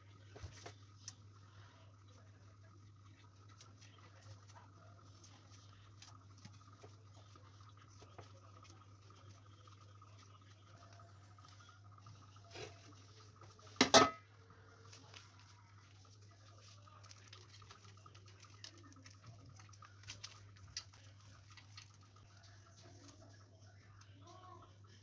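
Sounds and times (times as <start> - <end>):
dishes clattering: 13.8 - 14.3.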